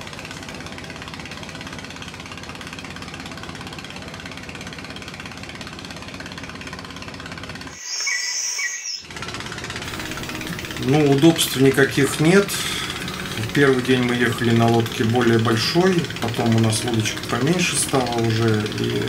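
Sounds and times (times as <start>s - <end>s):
boat inboard engine droning: 0.0s - 19.0s
loud high-pitched sound: 7.7s - 9.1s.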